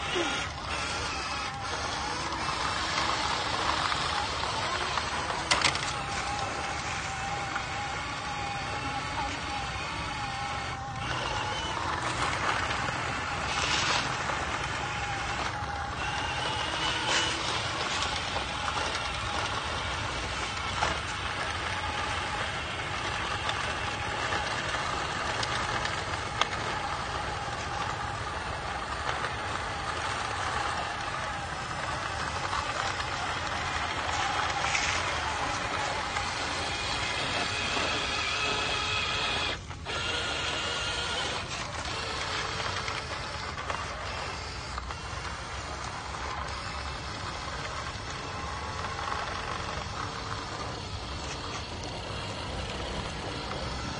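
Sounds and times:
electric motors whining: 0.0 - 53.9.

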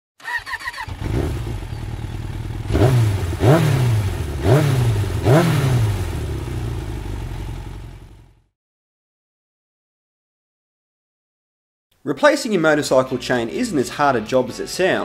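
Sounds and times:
motorcycle engine revving and idling: 0.2 - 8.5.

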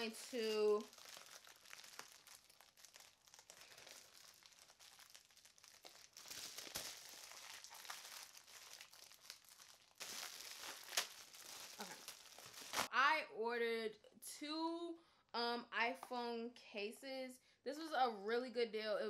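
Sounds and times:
plastic packaging crinkling: 0.0 - 12.9.

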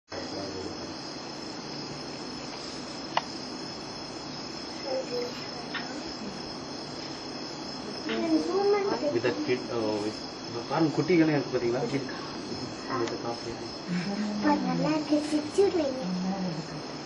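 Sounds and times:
crickets chirping: 0.1 - 17.0
sharp click: 3.1 - 3.3.

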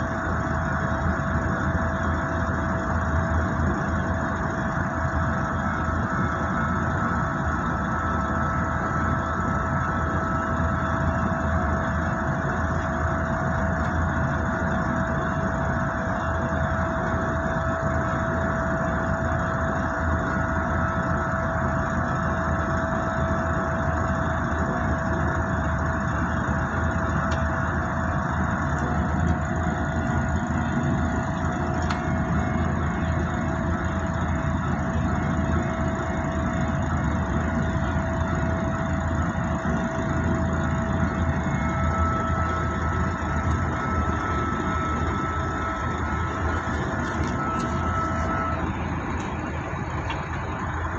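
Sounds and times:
high-pitched tone: 39.9 - 50.9.

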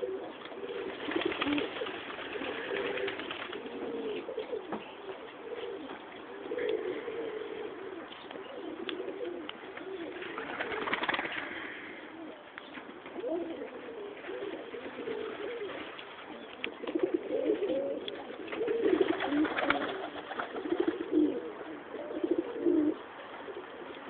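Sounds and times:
pigeons cooing: 0.0 - 24.0
wings rustling flurry: 0.8 - 3.8, 9.8 - 11.8, 18.3 - 21.2.

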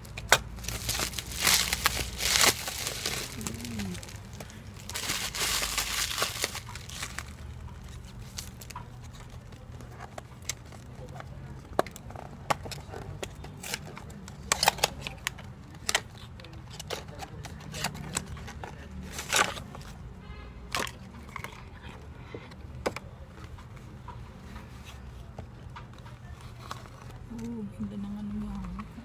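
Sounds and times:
drawstring pouch handled: 0.0 - 10.9
cardboard box clicks and rustles: 0.0 - 20.0.

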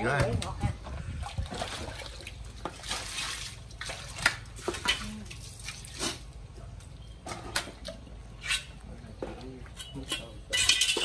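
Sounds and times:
water splashing on concrete: 0.0 - 6.4.

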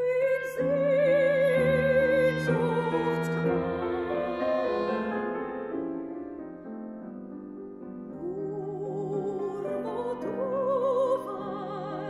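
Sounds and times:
operatic singing voice: 0.0 - 5.1, 8.2 - 12.0
piano chords: 0.0 - 12.0.

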